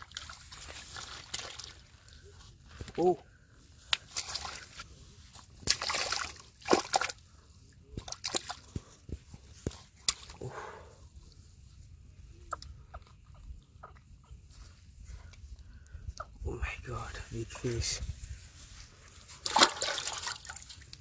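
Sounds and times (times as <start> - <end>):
fish slapping on wet grass: 0.0 - 1.9, 3.8 - 7.2, 7.9 - 9.0, 19.2 - 21.0
fish flopping and splashing: 3.8 - 7.2, 7.9 - 10.4, 19.3 - 21.0.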